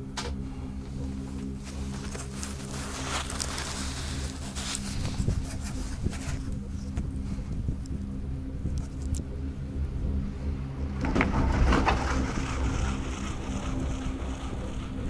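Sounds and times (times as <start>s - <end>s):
gondola cabin low hum: 0.0s - 15.0s
cabin grip rattling over sheaves: 1.6s - 6.5s.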